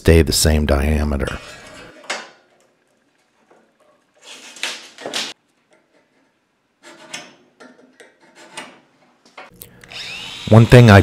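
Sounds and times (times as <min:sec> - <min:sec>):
tools scraping and clattering on metal: 0:03.5 - 0:09.5.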